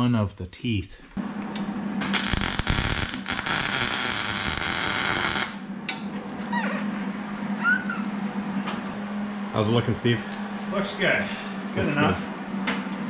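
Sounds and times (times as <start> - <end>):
low hum: 0.9 - 13.0
welding arc crackling: 2.0 - 5.6
faint high squeaks: 7.6 - 8.1.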